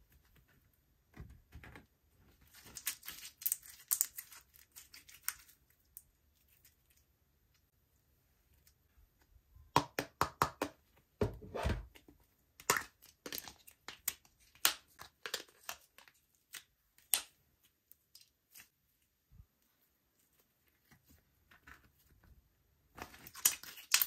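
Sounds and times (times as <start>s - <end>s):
sticky slime crackles and pops: 23.1s - 24.0s.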